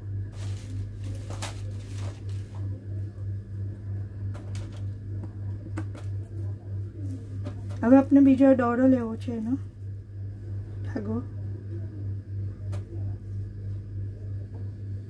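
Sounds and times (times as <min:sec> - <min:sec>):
low pulsing hum: 0:00.0 - 0:15.0.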